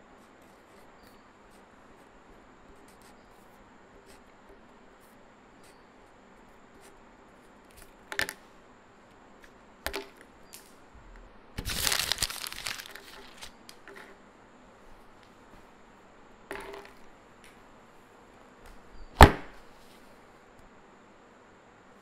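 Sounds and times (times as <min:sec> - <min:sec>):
paper crumpling: 0:11.6 - 0:13.9.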